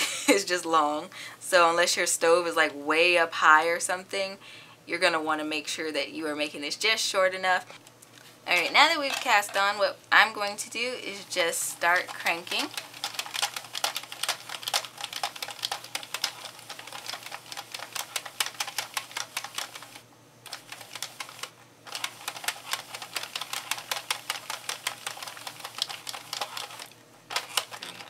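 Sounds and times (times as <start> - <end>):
knitting machine needles clicking: 11.4 - 28.0.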